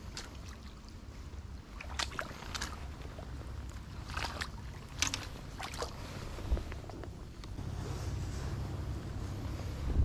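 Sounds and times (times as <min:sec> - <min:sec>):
short splashes: 0:00.0 - 0:01.0, 0:01.6 - 0:06.6
river water running: 0:00.0 - 0:09.8
wind rumble on microphone: 0:00.7 - 0:10.0.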